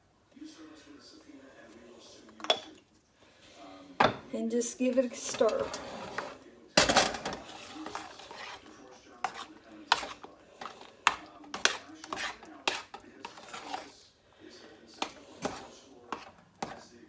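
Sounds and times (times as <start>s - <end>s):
metal spoon scraping a pan: 5.0s - 17.0s.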